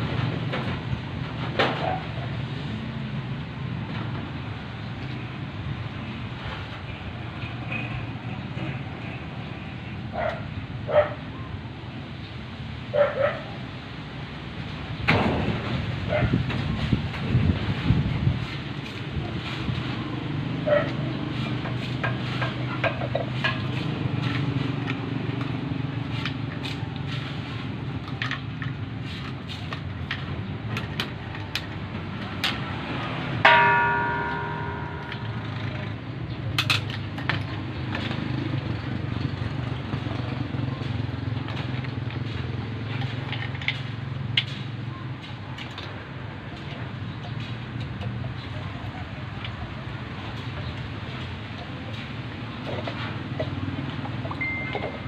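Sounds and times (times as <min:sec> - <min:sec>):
loud metallic clang: 0:33.5 - 0:35.7.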